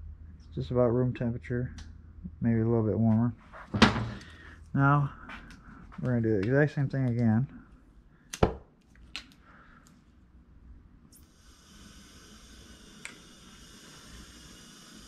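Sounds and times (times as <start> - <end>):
gas torch flame hissing: 11.2 - 15.0.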